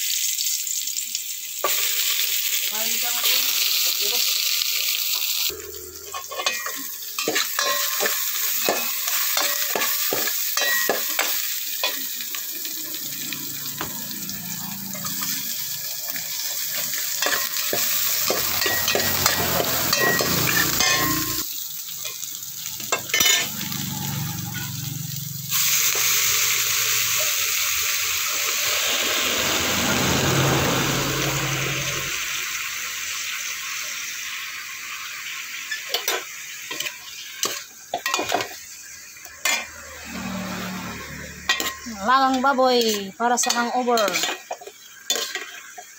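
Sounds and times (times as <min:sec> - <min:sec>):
meat sizzling loudly: 0:00.0 - 0:45.9
vegetables sizzling in a pot: 0:00.0 - 0:45.9
metal spoon clinking on pot: 0:06.1 - 0:12.0, 0:18.3 - 0:21.4, 0:22.9 - 0:23.5, 0:41.5 - 0:45.6.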